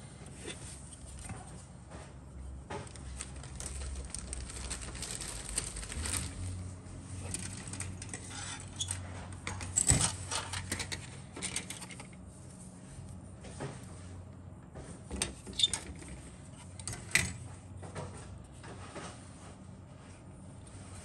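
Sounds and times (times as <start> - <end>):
plastic parts clicking and clattering: 7.2 - 12.2.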